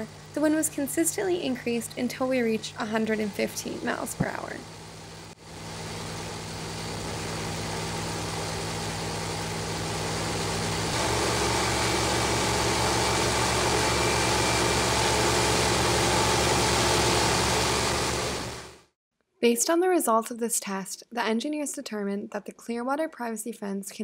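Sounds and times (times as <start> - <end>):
propeller engines droning: 0.0 - 18.8.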